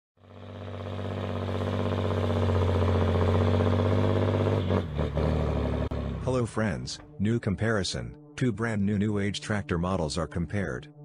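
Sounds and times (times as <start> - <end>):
engine droning: 0.2 - 7.2.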